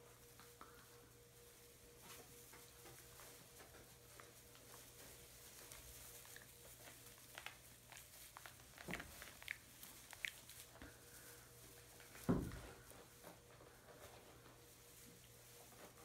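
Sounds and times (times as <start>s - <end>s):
faint steady hum: 0.0s - 16.0s
straw rustling under paws: 0.0s - 16.0s.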